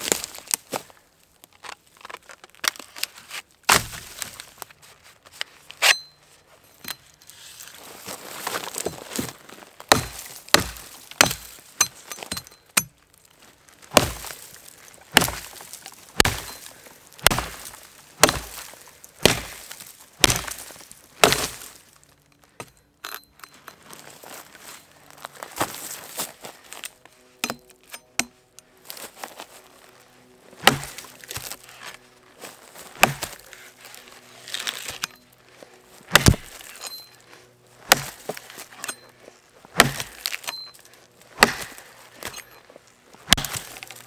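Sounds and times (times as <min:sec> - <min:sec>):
axe chopping into log: 0:03.7 - 0:04.2, 0:09.9 - 0:12.9, 0:13.9 - 0:14.4, 0:15.1 - 0:15.6, 0:16.2 - 0:21.7, 0:30.6 - 0:31.6, 0:33.0 - 0:33.4, 0:36.1 - 0:36.8, 0:37.8 - 0:39.0, 0:39.7 - 0:40.5, 0:41.4 - 0:42.5, 0:43.2 - 0:44.0.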